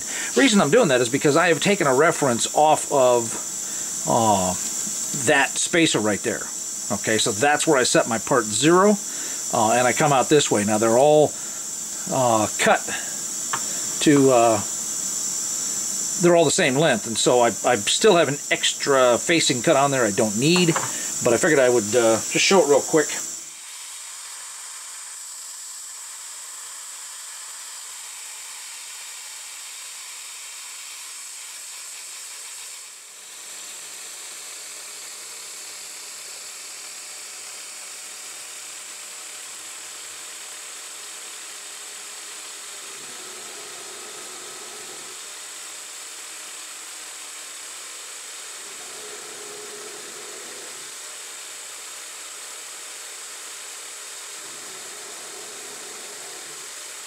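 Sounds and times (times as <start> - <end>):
lathe tool cutting metal: 0.0 - 43.8
lathe chuck spinning with hiss: 0.0 - 57.0.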